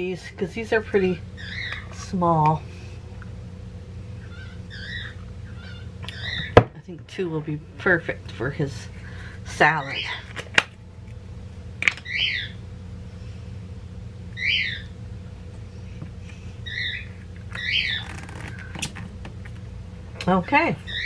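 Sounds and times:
low steady hum: 0.0s - 21.0s
bird squawking: 1.4s - 1.9s, 4.2s - 6.6s, 12.0s - 12.6s, 14.4s - 14.9s, 16.6s - 18.8s.

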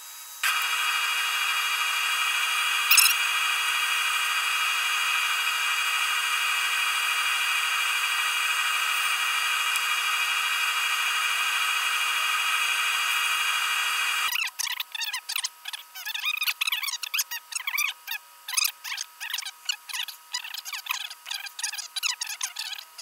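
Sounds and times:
wood lathe motor whine: 0.4s - 14.4s.

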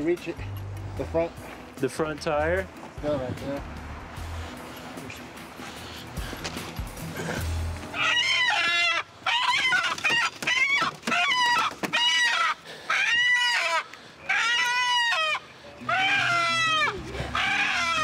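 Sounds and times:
chicken squawking: 7.9s - 18.0s.

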